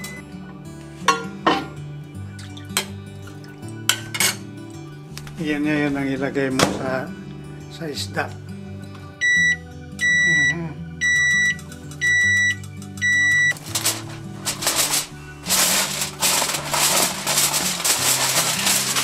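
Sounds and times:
oven timer beeping: 0.0 - 0.2, 9.2 - 13.6
aluminum foil crinkling: 13.5 - 19.0.

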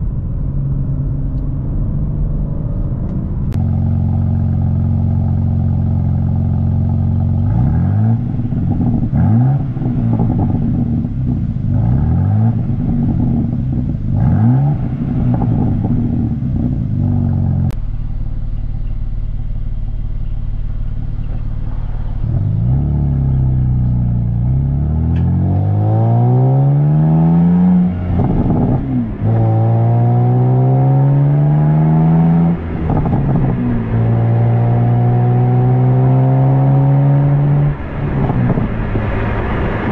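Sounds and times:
car exhaust revving: 0.0 - 39.9
car accelerating through gears: 21.7 - 39.9.

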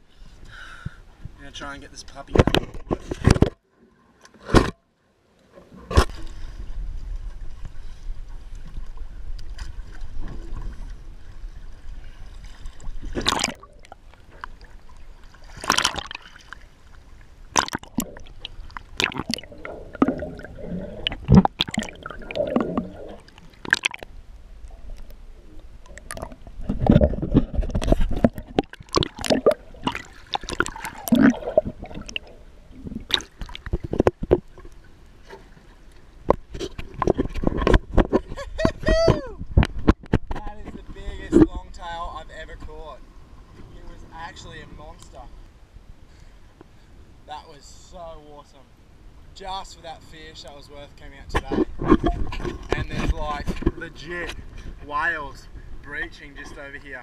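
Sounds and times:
sea water sloshing and gurgling: 5.5 - 46.9, 50.8 - 57.0
water splashes: 5.8 - 42.8.

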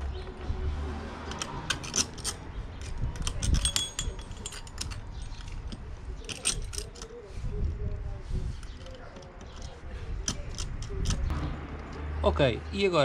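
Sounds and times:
metal clinks of nuts and washers: 1.3 - 7.1.

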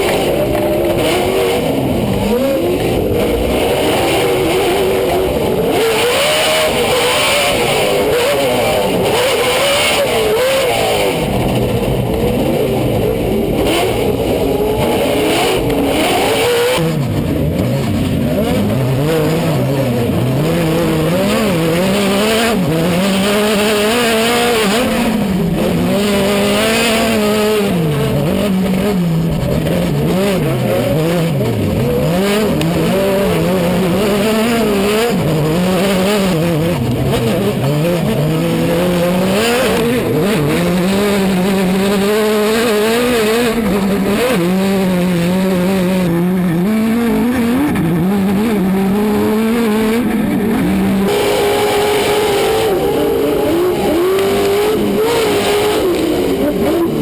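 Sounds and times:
race truck engines revving: 0.0 - 57.0
trucks racing past: 0.0 - 57.0.

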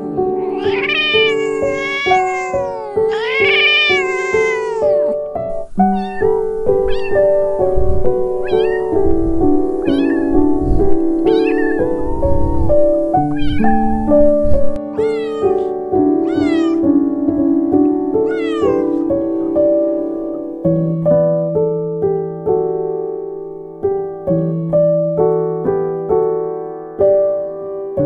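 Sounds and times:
gentle piano music: 0.0 - 28.0
cat meowing: 0.3 - 7.6, 8.3 - 9.2, 9.8 - 12.1, 13.2 - 13.9, 14.9 - 16.9, 18.2 - 19.1.

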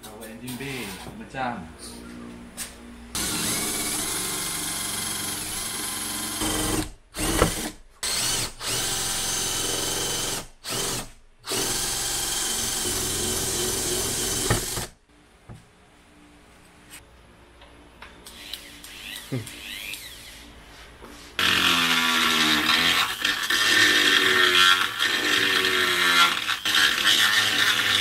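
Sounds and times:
cordless drill boring through metal: 3.2 - 14.9, 21.4 - 28.0.

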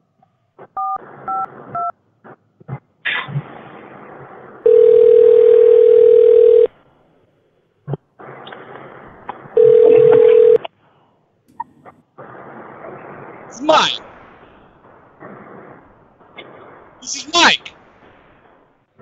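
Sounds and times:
telephone ringback tone: 4.6 - 6.7, 9.6 - 10.6
phone line hiss: 4.6 - 6.8, 9.6 - 10.7.

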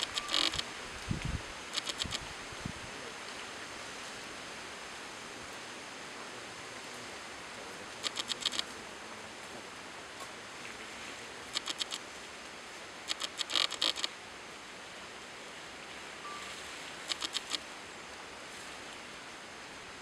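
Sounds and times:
steady outdoor hiss: 0.0 - 20.0
crisp rustling clicks: 1.8 - 2.2, 11.6 - 12.0, 13.1 - 14.1.

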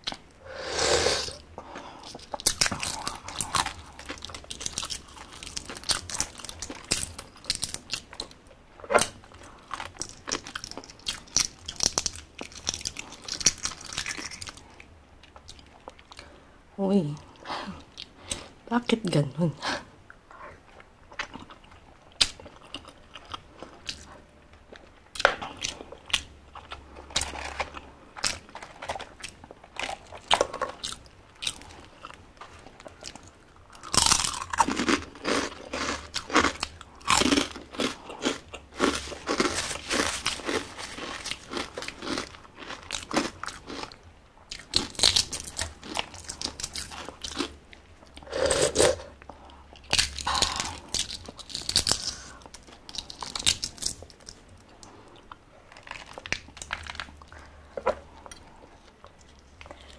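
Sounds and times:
chewing sounds: 1.6 - 16.4, 20.1 - 59.9
loud crisp crunching: 25.2 - 47.5.

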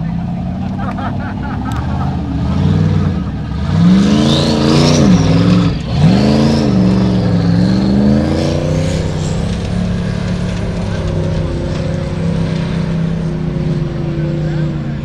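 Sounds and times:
buggy engine revving hard: 0.0 - 15.0
high engine whine: 0.0 - 15.0.

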